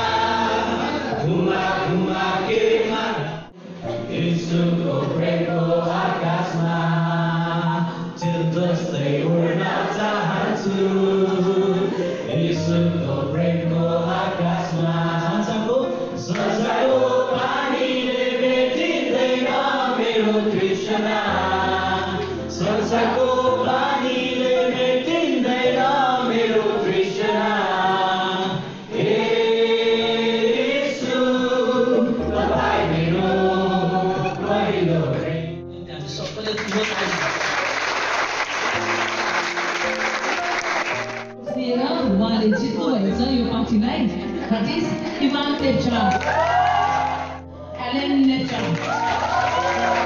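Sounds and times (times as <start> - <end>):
congregation singing: 0.0 - 35.9, 48.7 - 50.0.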